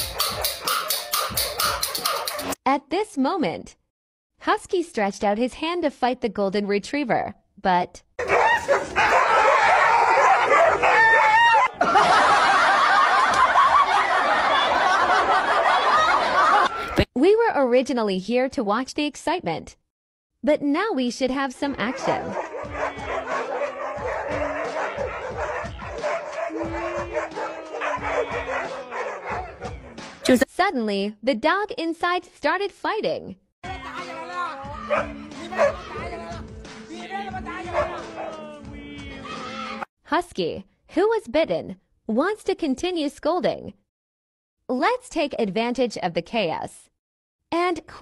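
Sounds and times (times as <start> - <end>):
dogs barking and yelping: 0.0 - 2.6, 8.2 - 17.0, 21.8 - 30.2, 34.8 - 36.2, 37.7 - 38.4
people laughing: 11.5 - 17.1, 22.1 - 29.6.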